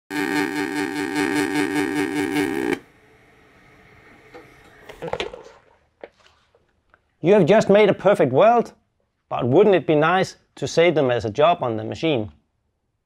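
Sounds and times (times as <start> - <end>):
welding arc buzzing: 0.1 - 2.9.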